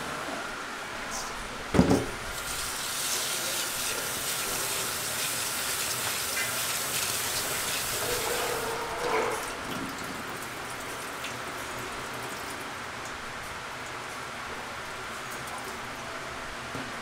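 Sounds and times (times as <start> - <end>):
tap water running into bowl: 2.4 - 14.2.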